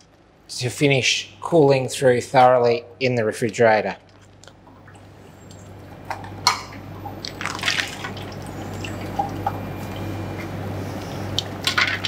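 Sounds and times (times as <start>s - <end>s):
water dripping and splashing: 7.2s - 10.0s.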